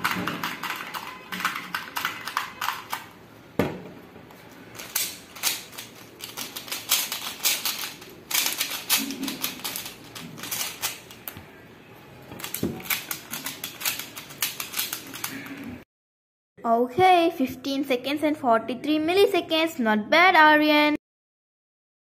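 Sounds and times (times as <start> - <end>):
plastic puzzle cubes clicking: 0.0 - 3.1, 4.8 - 11.4, 12.4 - 15.8.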